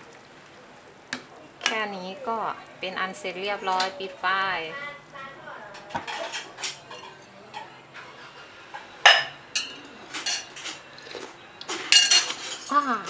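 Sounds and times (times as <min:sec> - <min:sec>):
metal ladle clinking on pot: 0:11.9 - 0:12.7.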